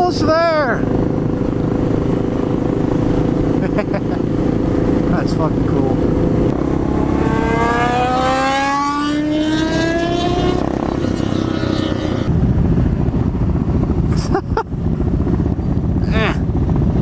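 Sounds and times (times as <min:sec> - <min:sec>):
motorcycle engine accelerating: 0:00.0 - 0:17.0
wind noise: 0:00.0 - 0:17.0.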